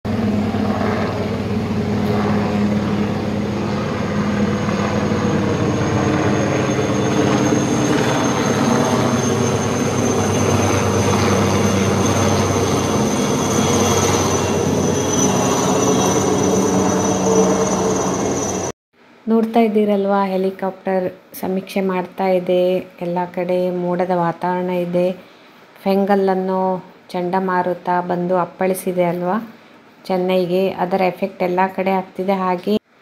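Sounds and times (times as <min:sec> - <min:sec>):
helicopter rotor and engine: 0:00.1 - 0:18.8
high whine: 0:00.1 - 0:19.6.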